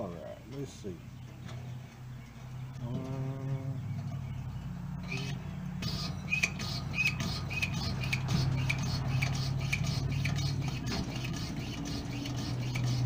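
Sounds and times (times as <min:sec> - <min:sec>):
hand pump squeaking and hissing: 0:05.1 - 0:13.0.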